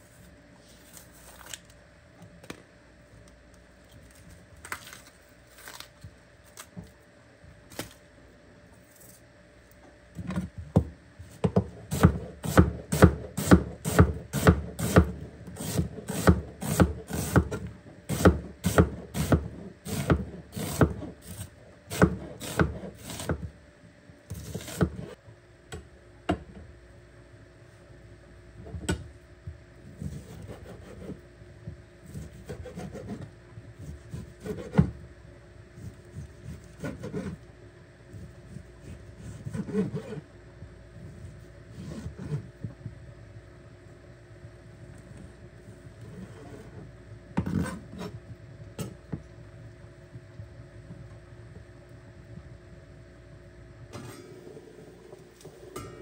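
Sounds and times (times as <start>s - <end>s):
knife chopping on wooden board: 11.4s - 21.0s, 21.9s - 23.4s.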